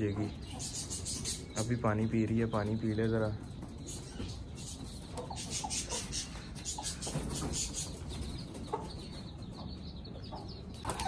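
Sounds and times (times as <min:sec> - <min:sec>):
chickens clucking: 0:00.0 - 0:11.0.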